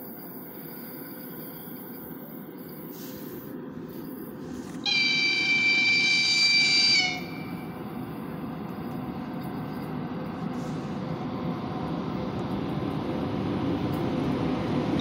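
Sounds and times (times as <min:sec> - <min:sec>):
train rumbling: 0:00.0 - 0:15.0
locomotive whistle: 0:04.8 - 0:07.8.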